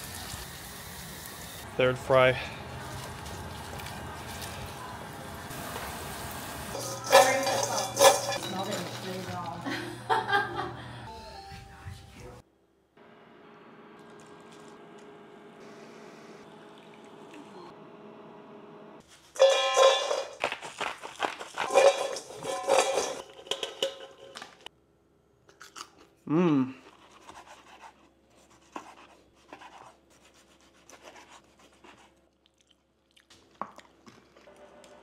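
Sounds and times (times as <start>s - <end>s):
fries crackling into metal bowl: 5.5s - 9.8s, 19.3s - 24.7s.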